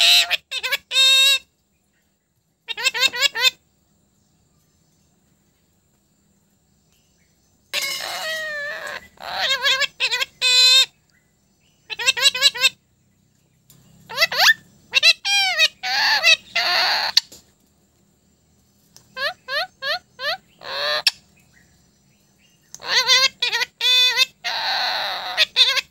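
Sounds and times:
parakeet calling and chattering: 0.0s - 1.5s, 2.7s - 3.6s, 7.7s - 11.0s, 11.6s - 12.8s, 13.8s - 17.3s, 19.0s - 21.7s, 22.4s - 25.9s.

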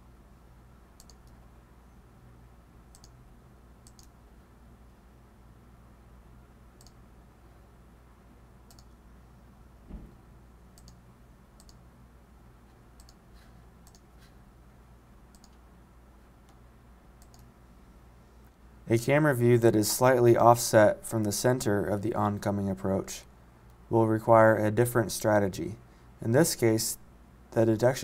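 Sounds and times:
faint hum: 0.0s - 28.0s
computer mouse clicking: 1.0s - 1.4s, 2.9s - 3.2s, 3.8s - 4.2s, 6.8s - 7.0s, 8.7s - 9.0s, 10.8s - 11.0s, 11.6s - 11.8s, 13.0s - 13.2s, 13.8s - 14.1s, 15.3s - 15.6s, 17.2s - 17.5s
soft thump: 9.9s - 10.2s.

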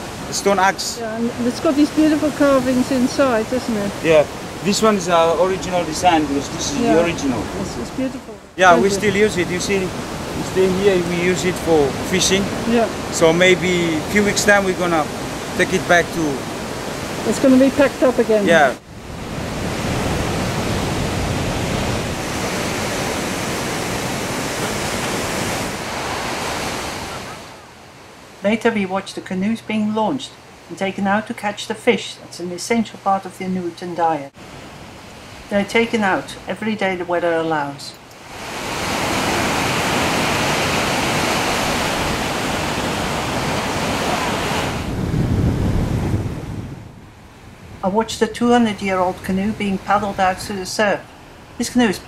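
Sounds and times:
surf breaking on a beach: 0.0s - 27.7s, 38.2s - 47.8s.

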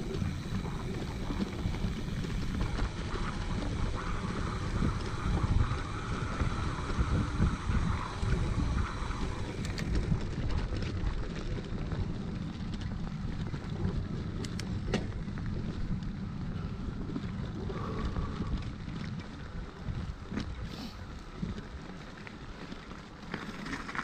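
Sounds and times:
wind buffeting microphone: 0.0s - 22.6s
sharp clicks from bike: 0.0s - 24.0s
tyres rumbling on dirt: 0.0s - 24.0s.

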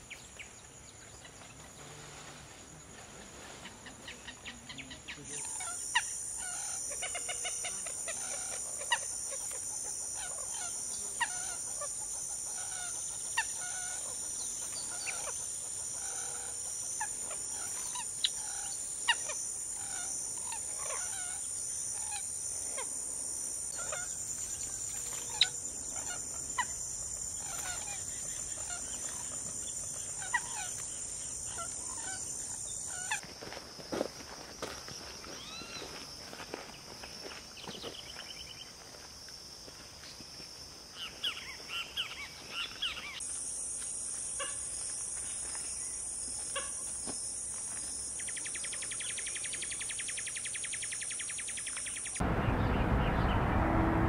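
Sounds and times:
high-pitched insect chorus: 0.0s - 53.3s
birds calling: 3.7s - 23.0s, 23.7s - 33.2s.

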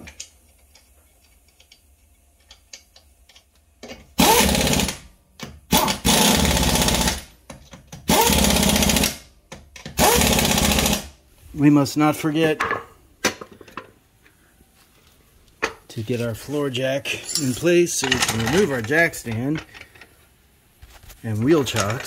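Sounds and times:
pneumatic impact wrench bursts: 4.2s - 5.0s, 5.7s - 7.3s, 8.1s - 9.2s, 9.9s - 11.1s.

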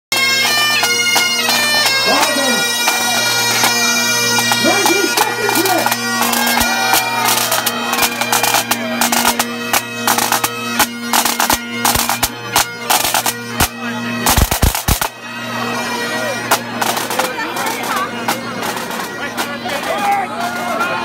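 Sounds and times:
bagpipes playing: 0.1s - 21.0s
sharp cracks and knocks: 14.3s - 15.1s.

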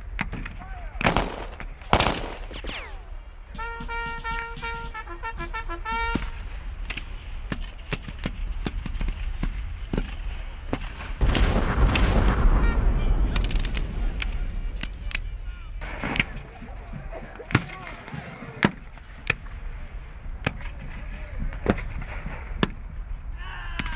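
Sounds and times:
musket shots: 0.1s - 19.6s, 20.4s - 23.1s
bugle call: 3.5s - 6.4s
deep rumble: 6.2s - 17.2s.

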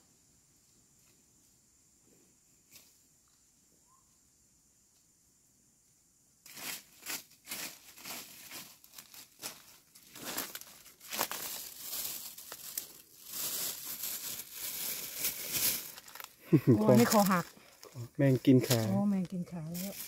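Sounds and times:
plastic bag crinkling: 7.7s - 20.0s.

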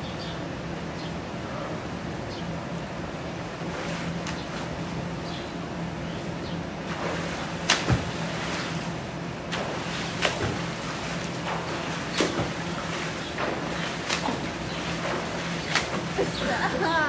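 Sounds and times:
pool water splashing and lapping: 0.0s - 17.0s
steady low hum: 0.0s - 17.0s
swimming stroke slaps: 6.8s - 17.0s.

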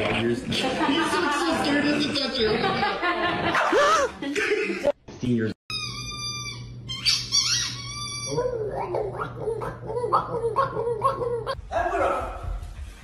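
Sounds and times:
dog whining: 5.7s - 11.6s.

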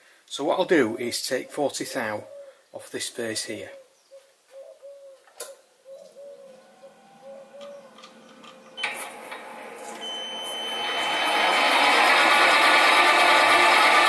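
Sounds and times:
lathe motor whine: 6.2s - 14.0s.

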